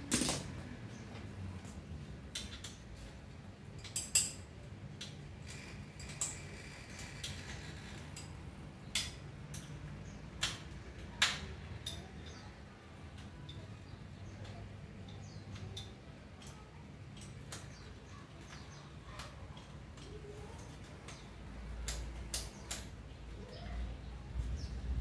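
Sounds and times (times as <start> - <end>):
metallic tool clicks and clinks: 3.8 - 6.5.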